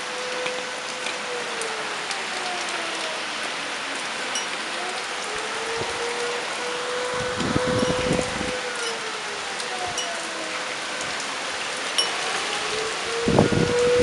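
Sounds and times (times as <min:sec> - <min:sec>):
heavy rain hissing: 0:00.0 - 0:14.0
wind rumble on microphone: 0:05.3 - 0:09.0, 0:12.0 - 0:14.0.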